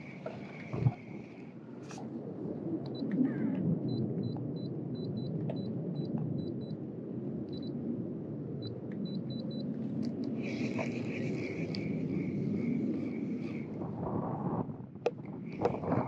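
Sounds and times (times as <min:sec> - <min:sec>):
water noise: 0:00.0 - 0:03.2, 0:10.2 - 0:16.0
wind: 0:00.0 - 0:16.0.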